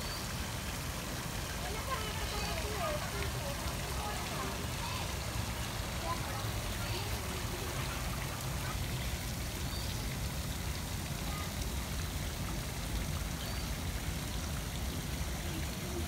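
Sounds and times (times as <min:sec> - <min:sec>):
running water splashing: 0:00.0 - 0:16.0.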